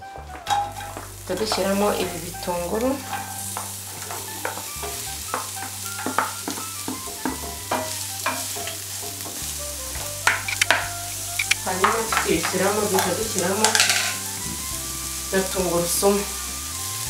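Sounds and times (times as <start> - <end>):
onions frying sizzle: 0.0 - 17.0
wooden spatula clicking on board and pan: 3.0 - 9.4, 10.2 - 14.3.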